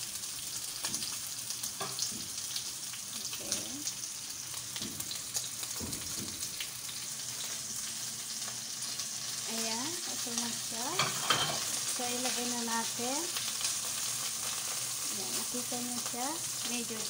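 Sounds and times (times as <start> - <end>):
popping and crackling fat: 0.0 - 11.0
meat sizzling in a frying pan: 0.0 - 17.0.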